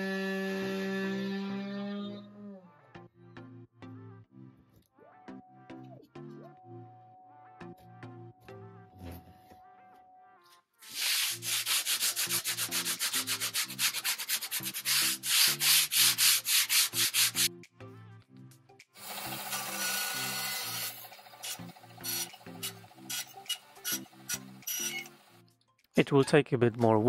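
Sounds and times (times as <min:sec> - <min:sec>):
sanding sponge rubbing wood: 0:10.9 - 0:17.5
steady machine noise: 0:19.0 - 0:25.4.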